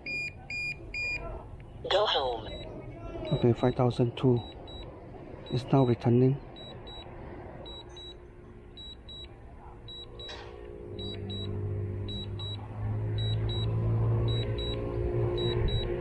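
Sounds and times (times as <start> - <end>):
low steady hum: 0.0 - 16.0
remote controller beeping: 2.4 - 3.8, 5.5 - 7.1, 7.7 - 8.2, 8.8 - 10.4, 11.0 - 12.6, 13.2 - 16.0.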